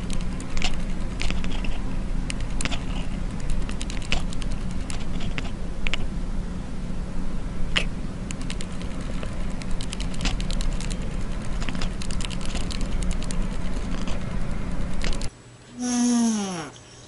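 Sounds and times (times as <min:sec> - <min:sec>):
steady low rumble: 0:00.0 - 0:15.3
quick sharp clicks: 0:07.8 - 0:14.1.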